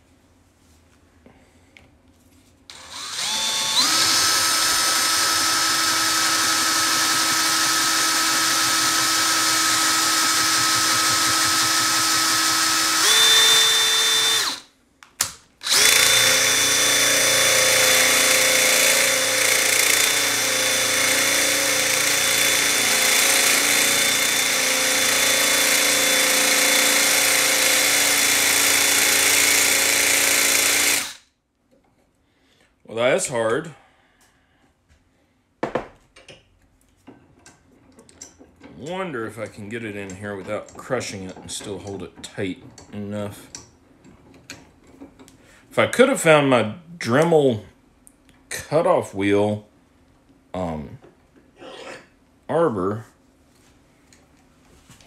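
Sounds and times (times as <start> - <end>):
cordless drill drilling metal: 2.7 - 14.7, 15.6 - 31.2.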